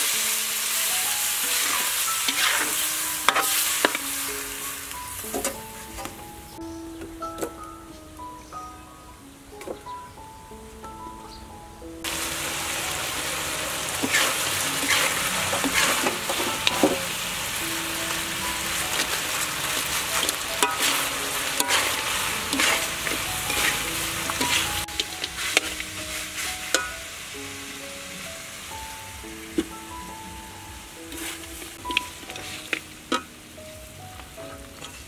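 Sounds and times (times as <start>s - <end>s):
food sizzling in a wok: 0.0s - 6.6s, 12.0s - 35.0s
metal spatula scraping pan: 1.5s - 4.1s, 14.0s - 17.2s, 19.8s - 26.9s, 31.1s - 33.3s.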